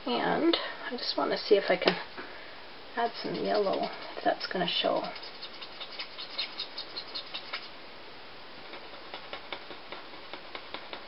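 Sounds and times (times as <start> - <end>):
marker scratching on cardstock: 3.2 - 4.2, 4.9 - 7.7.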